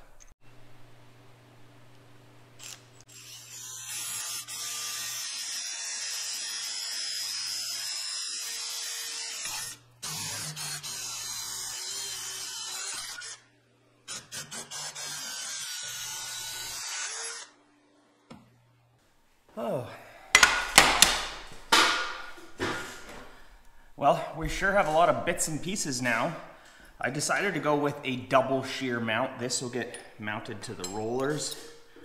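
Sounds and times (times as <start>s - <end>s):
drill boring through metal: 2.6s - 13.5s, 14.1s - 17.6s.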